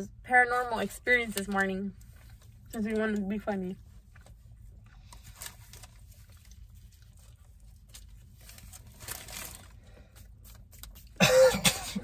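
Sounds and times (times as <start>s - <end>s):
low steady hum: 0.0s - 12.0s
soft eating noises: 1.9s - 11.2s
paper wrapper crinkling: 5.0s - 11.2s.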